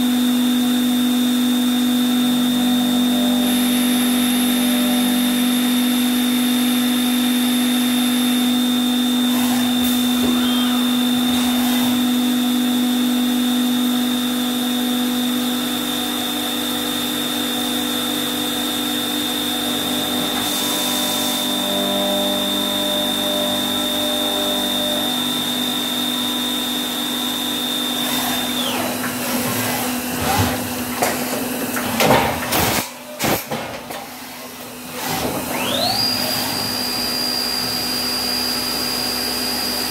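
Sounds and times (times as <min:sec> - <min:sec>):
machine spindle whine and hum: 0:00.0 - 0:39.9
short machine whirs: 0:08.9 - 0:12.7, 0:19.7 - 0:39.6.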